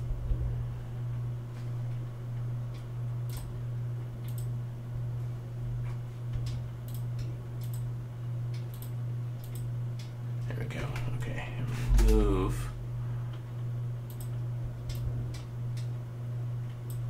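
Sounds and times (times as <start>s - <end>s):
low hum: 0.0s - 17.0s
computer mouse clicking: 2.7s - 3.5s, 4.2s - 4.5s, 6.4s - 7.9s, 8.5s - 10.2s, 14.1s - 15.9s.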